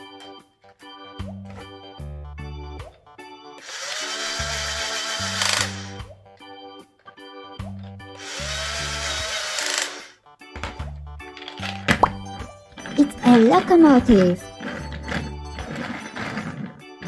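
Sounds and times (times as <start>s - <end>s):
background music: 0.0s - 17.0s
toy drill motor whirring: 3.6s - 6.0s, 8.2s - 10.2s, 13.2s - 17.0s.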